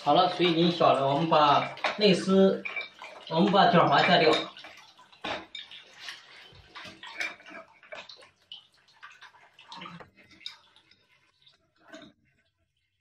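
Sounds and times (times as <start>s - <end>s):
water running and dripping: 0.0s - 13.0s.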